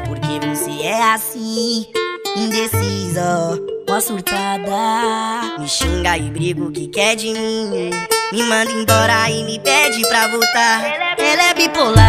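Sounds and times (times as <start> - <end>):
sped-up funk music: 7.9 - 12.0.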